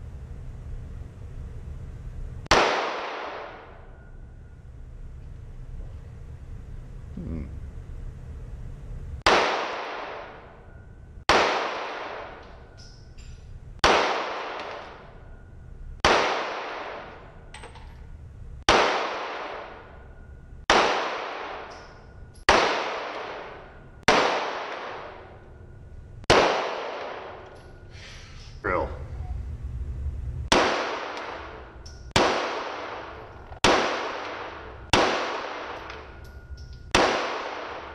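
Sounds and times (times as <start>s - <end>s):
pistol shots echoing indoors: 2.4s - 4.6s, 9.2s - 27.9s, 30.5s - 37.9s.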